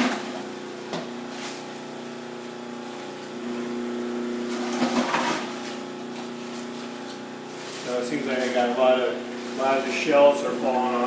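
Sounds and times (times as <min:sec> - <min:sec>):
food processor motor hum: 0:00.0 - 0:07.9
cabbage being shredded: 0:04.5 - 0:10.4.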